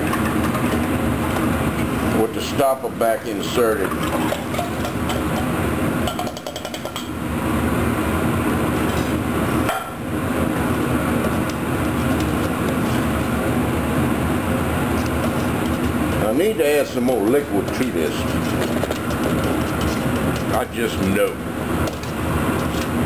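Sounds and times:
steady background noise: 0.0 - 23.0
spoon scraping tin can: 17.6 - 20.6.

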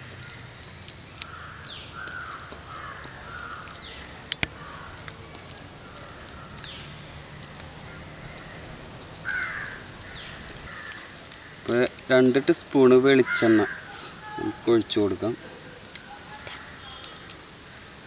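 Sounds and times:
crows cawing: 0.0 - 0.6, 1.2 - 11.7, 13.1 - 14.6.

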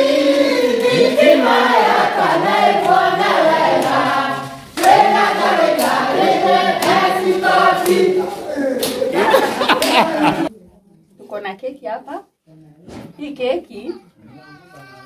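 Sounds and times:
group of people singing: 0.0 - 10.5
hand claps: 0.8 - 10.4.

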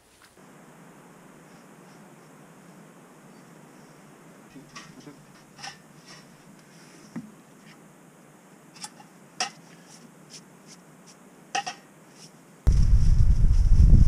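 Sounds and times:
metal cookware clinks and knocks: 11.6 - 11.8.

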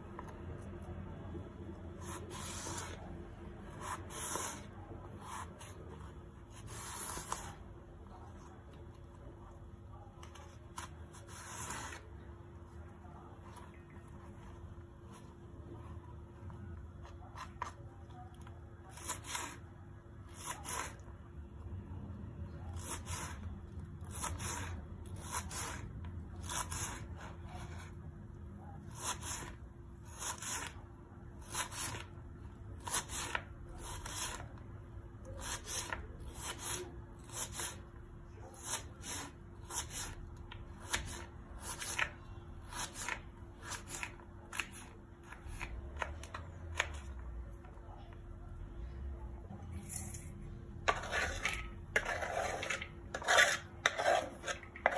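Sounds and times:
knife cutting carrot on board: 2.0 - 3.1, 18.8 - 19.6, 20.3 - 21.0, 22.7 - 28.0, 28.8 - 30.8, 32.8 - 34.6, 35.3 - 37.8, 38.5 - 47.2, 50.8 - 54.9.

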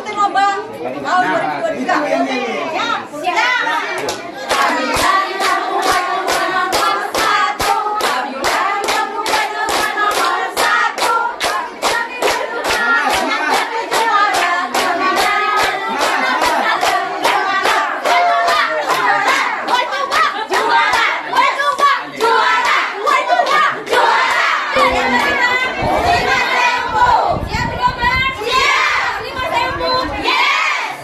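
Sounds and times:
women singing together: 2.8 - 31.0
hand clapping: 4.0 - 21.1.

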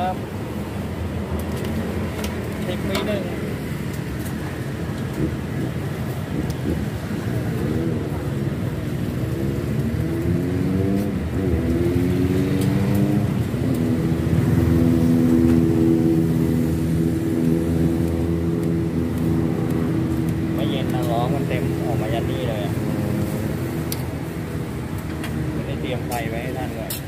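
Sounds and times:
vehicle engine revving: 5.2 - 26.7.

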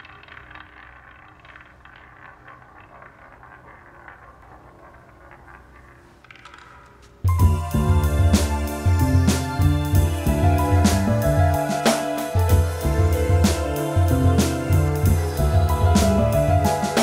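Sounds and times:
crackling clicks and hiss: 0.0 - 7.4
quiet low held notes: 7.2 - 17.0
loud piano guitar and bass music: 7.3 - 17.0.

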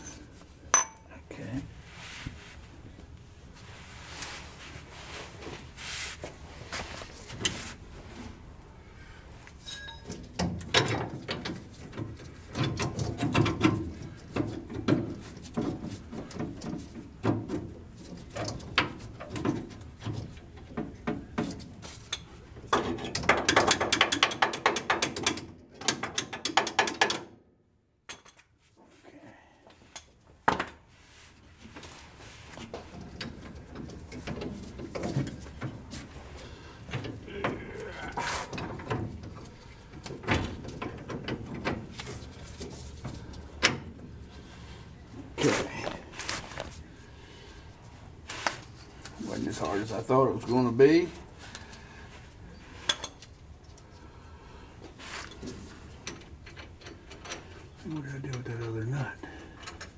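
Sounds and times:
metal clinking on metal: 0.0 - 1.1, 9.6 - 11.0.

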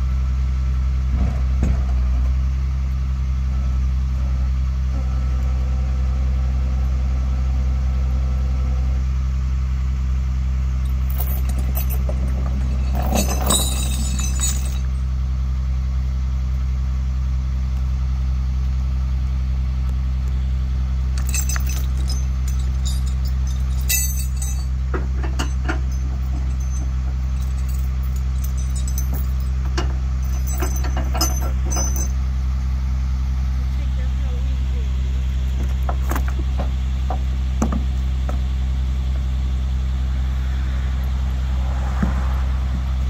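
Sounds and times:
truck engine idling: 0.0 - 43.0
chain and hook clinking: 10.8 - 15.0, 21.2 - 32.2.

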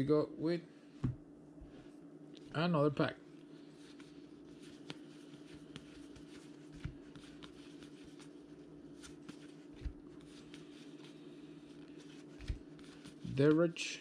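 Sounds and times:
steady low hum: 0.0 - 14.0
soft thumps: 1.0 - 1.2
cards rustling: 3.6 - 13.9.

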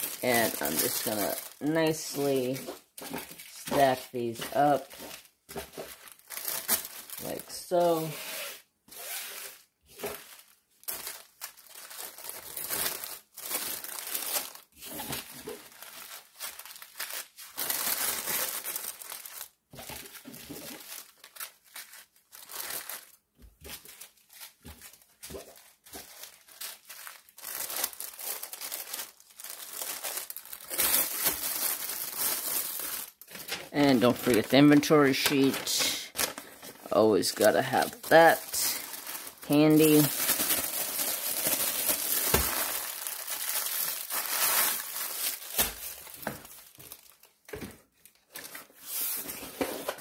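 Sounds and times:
plastic bags crinkling: 0.0 - 50.0.

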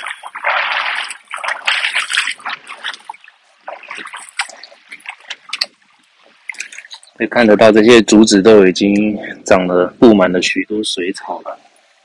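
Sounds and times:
seawater splashing around poles: 0.0 - 7.3.

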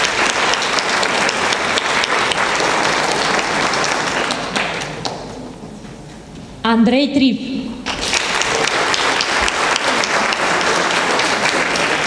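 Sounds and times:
audience applauding: 0.0 - 5.4, 7.8 - 12.0.

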